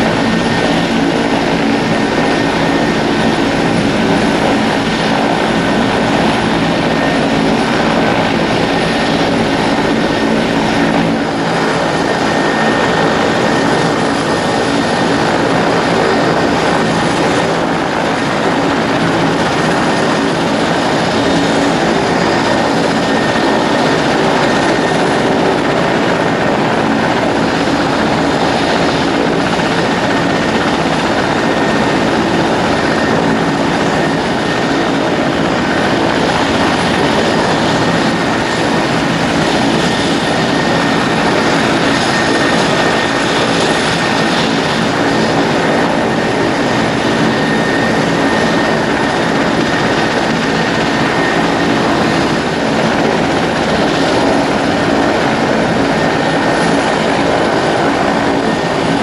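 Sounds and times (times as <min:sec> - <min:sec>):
helicopter engines and rotor: 0:00.0 - 0:59.0.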